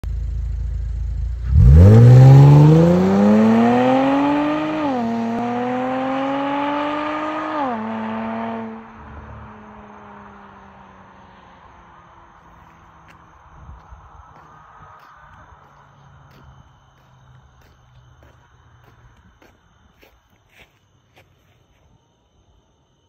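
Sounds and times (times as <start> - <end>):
car engine revving and accelerating: 0.2 - 13.2.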